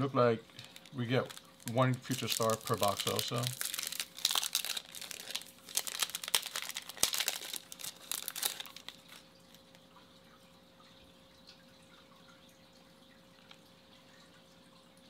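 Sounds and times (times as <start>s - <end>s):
card pack wrapper tearing: 0.6s - 9.2s.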